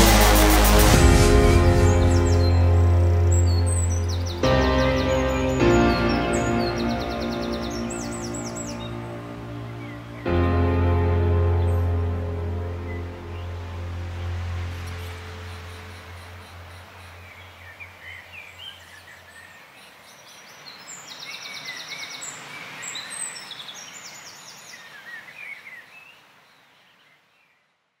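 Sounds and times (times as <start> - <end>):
low music drone: 0.0 - 18.2
birds chirping and trilling: 0.0 - 27.6.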